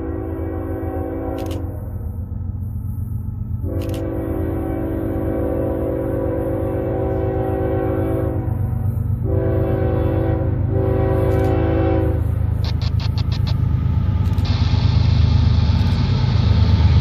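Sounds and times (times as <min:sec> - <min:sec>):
locomotive air horn blasts: 0:00.0 - 0:02.0, 0:03.6 - 0:12.5
locomotive and train rumble: 0:00.0 - 0:17.0.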